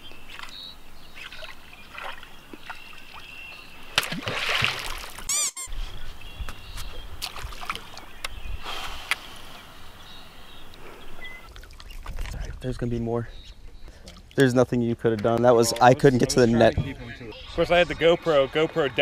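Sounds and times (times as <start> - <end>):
water lapping and splashing: 0.0 - 5.3, 6.8 - 9.6, 10.7 - 12.7, 13.7 - 14.5
faint bird calls: 7.8 - 12.1.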